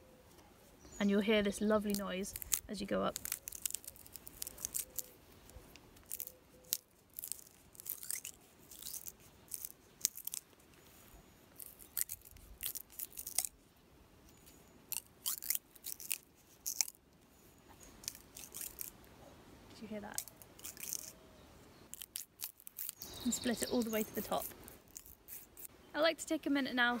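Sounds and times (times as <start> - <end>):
plant stem crackling and tearing: 1.8 - 10.8, 11.5 - 13.6, 14.3 - 17.0, 17.8 - 19.0, 20.1 - 21.2, 21.9 - 25.7.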